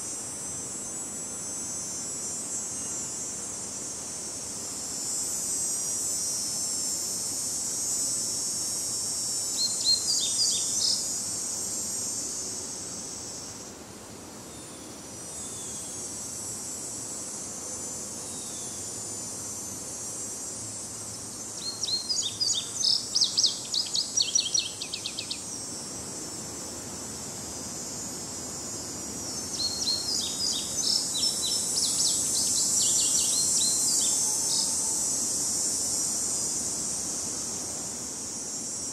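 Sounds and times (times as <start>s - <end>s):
high insect drone: 0.0s - 38.9s
songbird chirping: 21.6s - 25.5s.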